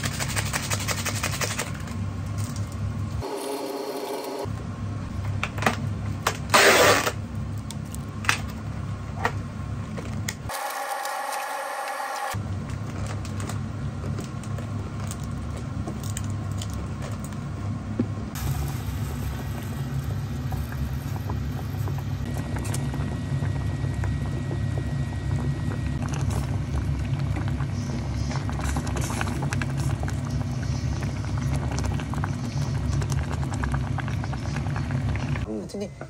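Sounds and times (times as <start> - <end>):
broth boiling with bubbling pops: 12.3 - 35.5.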